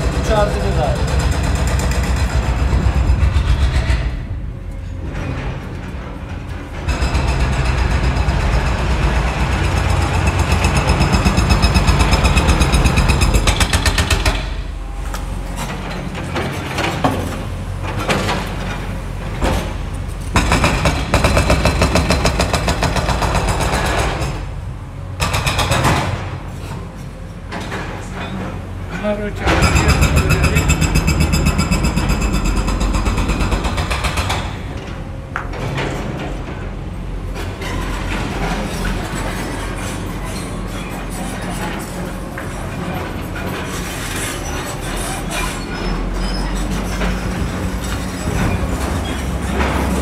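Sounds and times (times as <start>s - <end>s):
power tool pounding: 0.0s - 4.3s, 6.8s - 14.6s, 20.3s - 24.4s.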